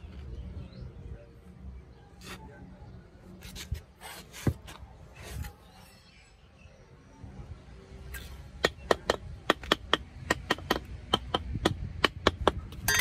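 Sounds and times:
metal tool tapping cement: 8.6s - 13.0s.

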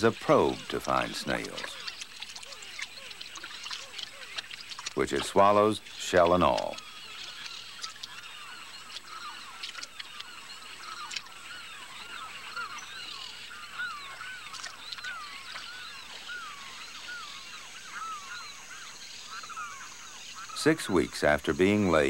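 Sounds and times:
flock of birds calling: 0.0s - 22.0s.

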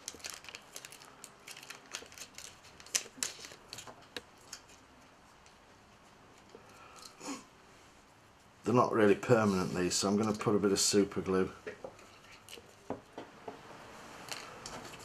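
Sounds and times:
plastic packet crinkling: 0.0s - 4.8s.

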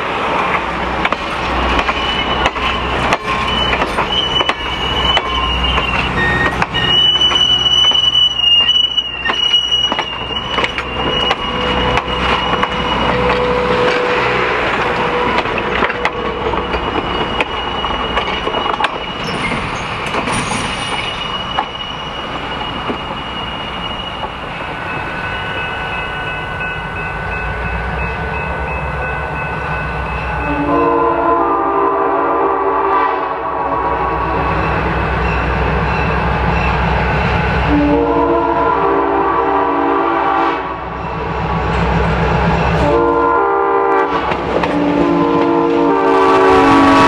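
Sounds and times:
train rumble: 0.0s - 47.0s
train wheels clicking on rail joints: 0.2s - 25.5s, 44.0s - 45.6s
locomotive air horn: 6.5s - 15.8s, 30.4s - 34.4s, 37.6s - 40.8s, 42.8s - 47.0s.

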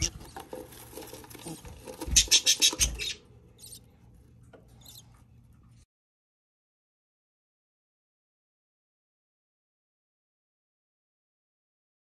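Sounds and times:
budgerigars chirping: 2.0s - 3.8s, 4.8s - 5.0s.

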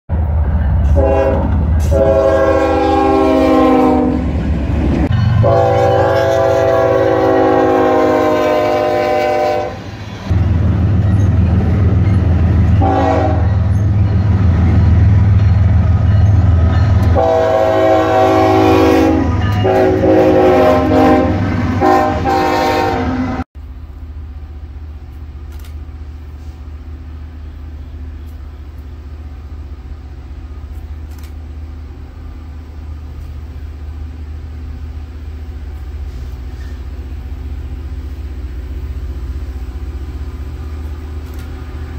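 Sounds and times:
diesel locomotive engine rumble: 0.1s - 41.9s
distant rail grinder rumble: 0.1s - 41.9s
train horn blasts: 0.8s - 4.3s, 5.2s - 9.9s, 12.7s - 13.8s, 17.1s - 23.4s.

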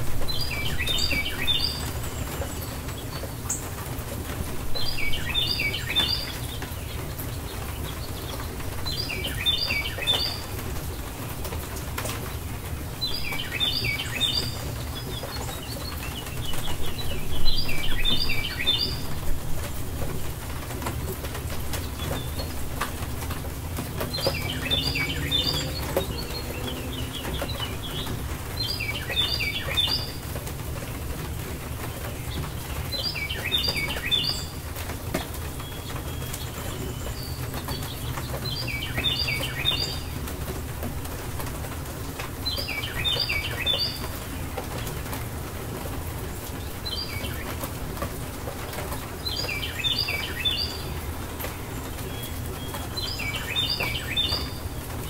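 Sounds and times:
songbird singing: 0.0s - 55.0s.

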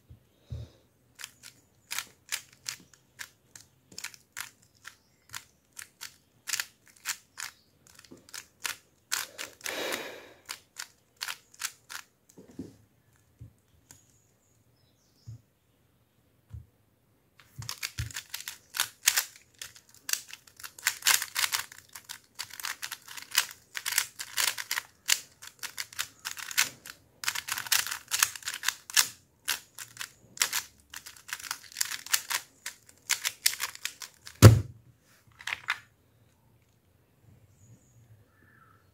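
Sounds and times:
plastic cube clicking: 1.2s - 12.1s, 17.4s - 34.6s.

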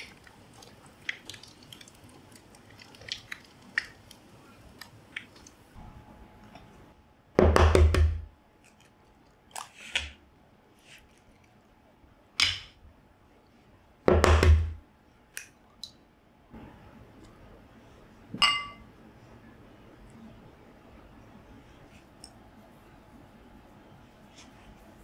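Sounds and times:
eggs knocking on bowl: 7.4s - 8.3s, 14.1s - 14.8s
glass bowl clink: 18.4s - 18.9s.

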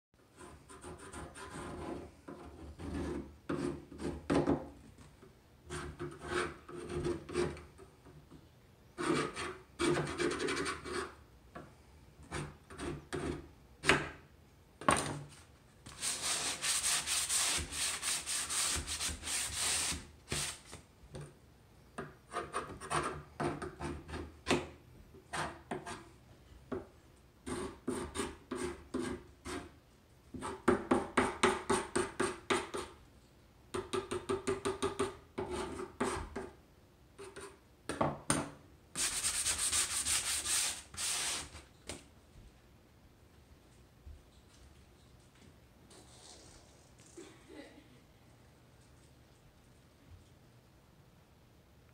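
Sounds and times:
scraper scraping painted wood: 15.9s - 20.8s, 39.0s - 41.7s
sanding sponge rubbing: 16.0s - 20.6s, 39.0s - 41.6s.

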